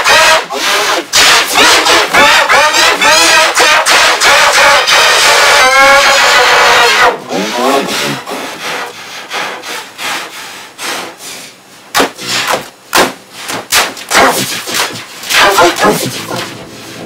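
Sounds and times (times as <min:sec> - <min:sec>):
loud distorted yell: 0:00.0 - 0:08.3
rough scraping and rubbing: 0:00.0 - 0:11.2, 0:13.4 - 0:17.0
sharp knocks: 0:11.9 - 0:16.5.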